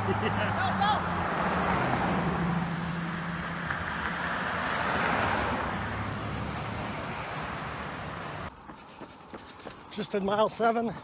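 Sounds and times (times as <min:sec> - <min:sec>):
car passing: 0:00.0 - 0:08.5.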